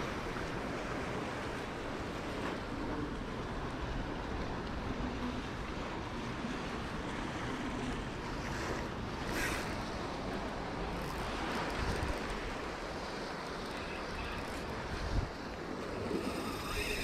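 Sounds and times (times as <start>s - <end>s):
waves washing up a beach: 0.0s - 17.0s
wind buffeting microphone: 14.7s - 17.0s.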